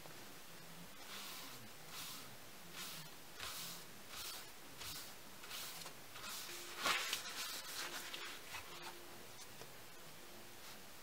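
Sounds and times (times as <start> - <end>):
paper towel rustling: 1.0 - 9.0.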